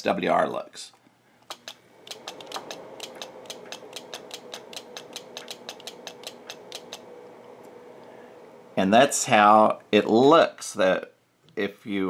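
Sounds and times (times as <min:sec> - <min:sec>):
radio transceiver clicking rapidly: 0:01.5 - 0:07.1.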